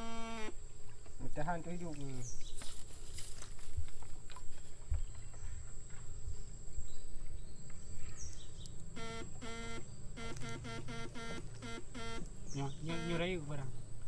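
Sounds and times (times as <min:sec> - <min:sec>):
electrofishing rig buzzing pulses: 0:00.0 - 0:00.6, 0:09.0 - 0:13.4
electrofishing rig high whine: 0:00.0 - 0:00.6, 0:09.0 - 0:13.6.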